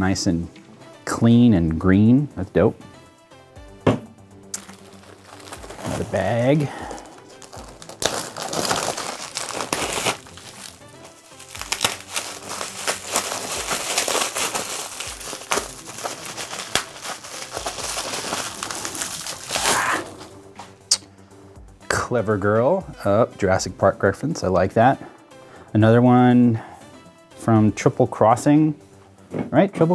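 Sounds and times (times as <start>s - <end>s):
plastic and bubble wrap crinkling: 4.5s - 20.3s.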